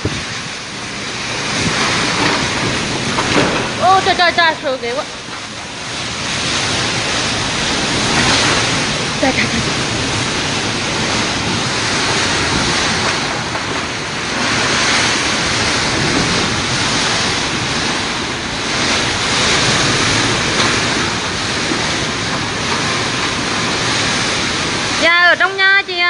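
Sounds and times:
heavy rain: 0.0s - 26.0s
strong wind gusting: 0.0s - 26.0s.

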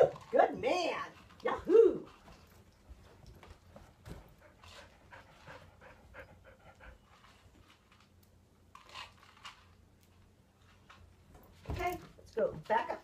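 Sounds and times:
puppy panting: 2.9s - 7.8s.

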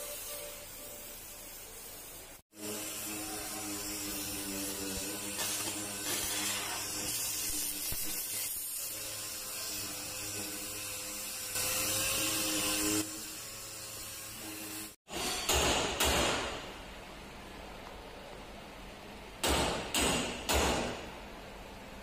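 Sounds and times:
cutting torch hissing: 0.0s - 9.5s.

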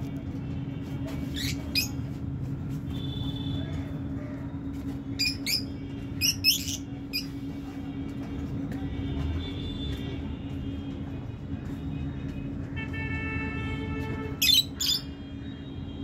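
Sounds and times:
lovebirds chirping: 5.2s - 7.3s.

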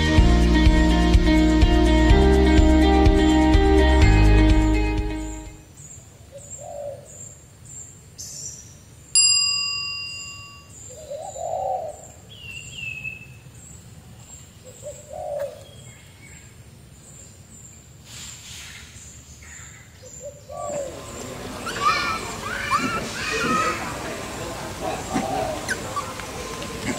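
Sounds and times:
low cooing calls: 6.3s - 7.2s, 10.9s - 12.2s, 14.6s - 15.9s, 20.0s - 26.9s
bell strike ringing: 9.2s - 10.7s
bird chirping: 10.2s - 17.9s, 18.6s - 22.9s.

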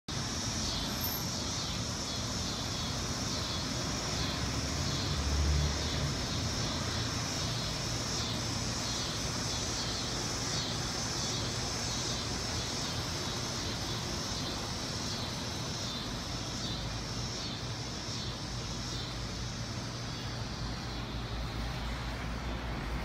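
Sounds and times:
cicadas buzzing: 0.1s - 23.0s
low traffic rumble: 0.1s - 23.0s
vehicle passing: 3.8s - 8.2s.

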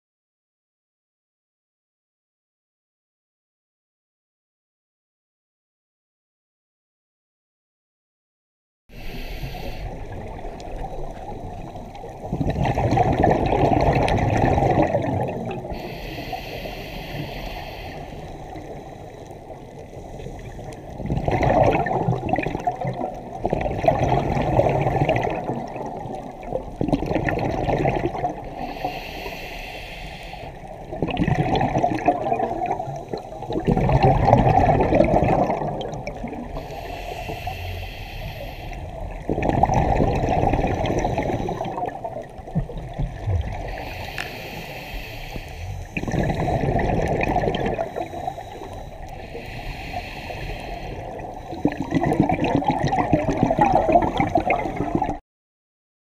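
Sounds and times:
regulator inhale hiss: 8.9s - 12.1s, 15.6s - 21.0s, 28.5s - 30.9s, 36.5s - 39.3s, 40.7s - 42.0s, 43.6s - 46.6s, 47.8s - 51.9s
gurgling exhaled bubbles: 9.0s - 55.2s.

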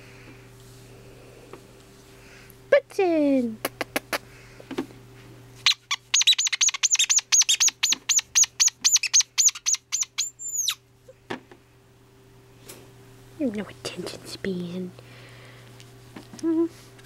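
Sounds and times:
bird chirping: 5.7s - 10.8s.

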